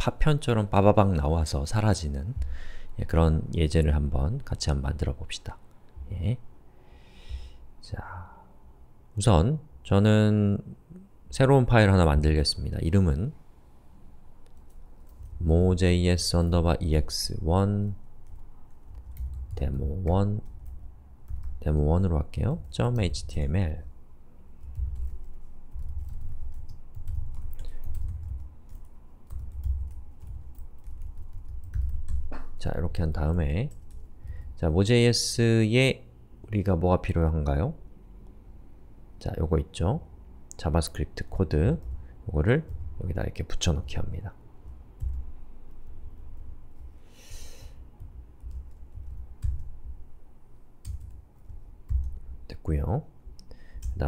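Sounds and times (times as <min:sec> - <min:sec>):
typing on computer keyboard: 0:14.4 - 0:15.5, 0:18.2 - 0:21.9, 0:24.6 - 0:32.6, 0:44.6 - 0:47.0, 0:48.0 - 0:50.1, 0:50.8 - 0:52.4, 0:53.7 - 0:54.0
keyboard keystrokes: 0:48.0 - 0:50.0, 0:50.8 - 0:52.2.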